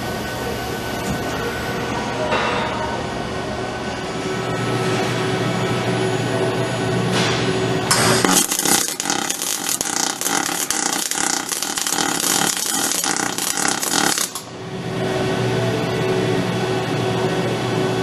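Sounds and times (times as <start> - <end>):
welding arc crackling: 7.9 - 14.5.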